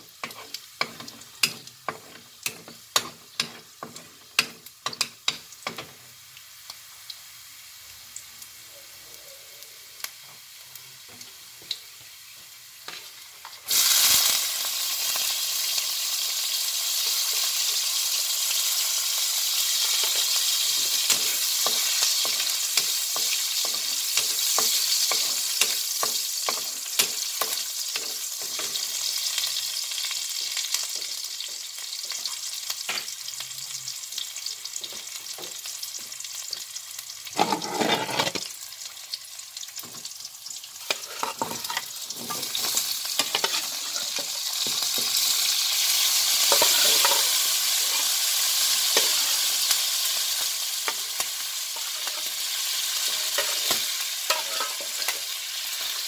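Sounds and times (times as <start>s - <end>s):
onion sizzling in hot oil: 0.0s - 56.0s
metal ladle scraping a wok: 37.4s - 38.5s, 40.8s - 44.4s, 46.5s - 48.1s, 53.1s - 55.2s.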